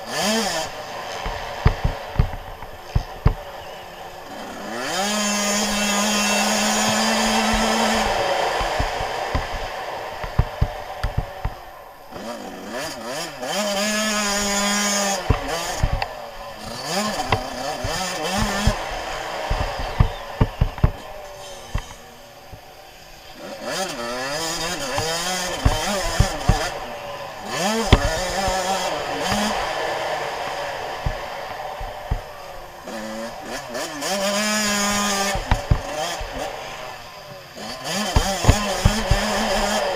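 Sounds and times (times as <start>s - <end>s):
bike knocking over bumps: 0.0s - 22.7s, 24.1s - 37.1s, 37.8s - 39.9s
dirt bike engine revving: 0.0s - 39.9s
sharp knocks: 24.9s - 26.7s, 34.8s - 36.4s, 38.1s - 39.8s.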